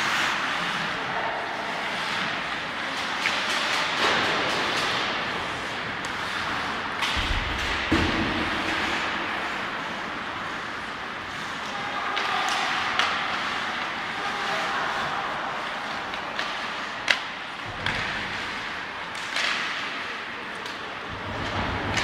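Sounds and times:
skates scraping ice: 0.0 - 22.0
cracks of sticks and puck: 1.7 - 22.0.

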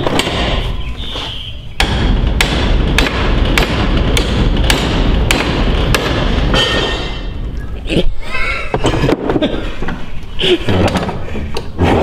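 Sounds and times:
hammer striking steel bar: 1.8 - 7.4
low steady rumble: 1.8 - 7.9.

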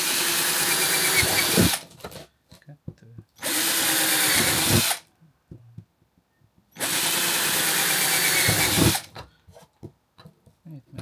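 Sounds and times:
power drill drilling: 0.0 - 1.8, 3.4 - 5.0, 6.8 - 9.1.

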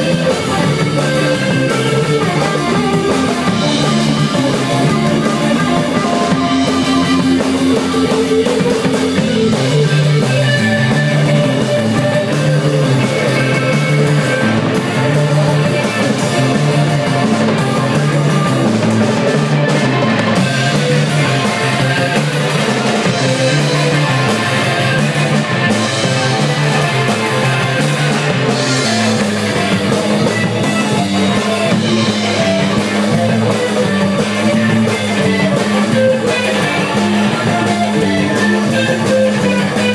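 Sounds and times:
low guitar riff: 0.0 - 39.9
rock band playing live: 0.0 - 39.9.

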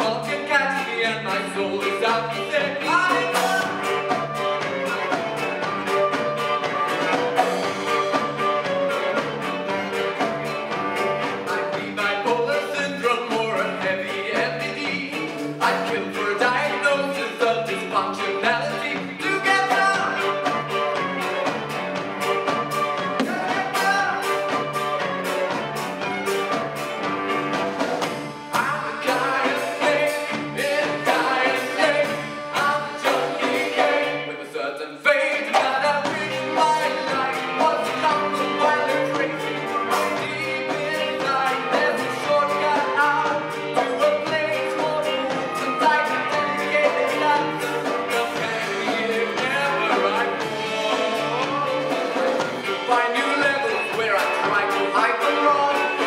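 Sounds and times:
folk ensemble playing: 0.0 - 34.5, 35.2 - 56.0.

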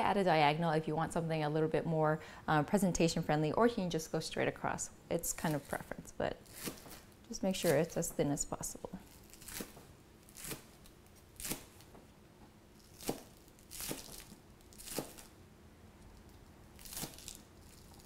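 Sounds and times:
knife slicing onions: 5.4 - 8.1, 9.2 - 10.8, 11.4 - 11.9, 12.8 - 15.3.

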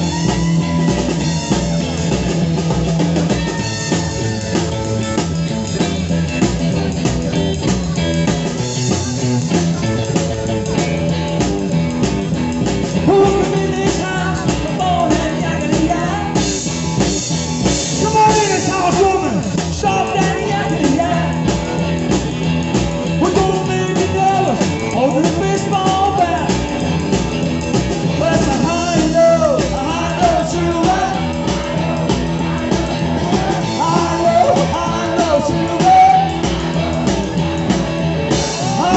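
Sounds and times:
rock band playing: 0.0 - 38.9
person singing: 13.0 - 16.6, 17.9 - 21.6, 23.2 - 26.7, 28.1 - 37.0, 38.3 - 38.9.

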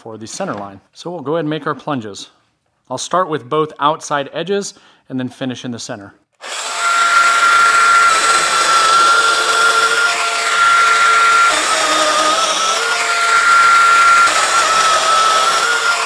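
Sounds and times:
joiner motor whine: 6.4 - 16.0.

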